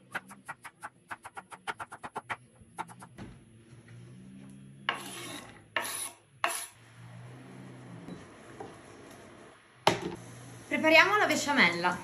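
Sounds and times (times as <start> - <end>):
knife scraping on wooden board: 4.9 - 6.8.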